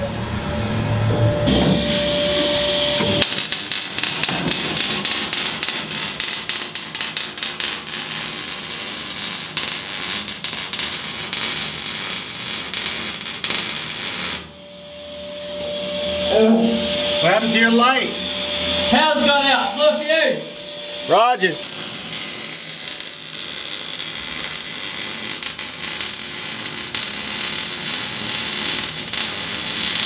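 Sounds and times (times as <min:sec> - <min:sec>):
welding arc crackling: 0:01.5 - 0:14.5, 0:19.1 - 0:30.0.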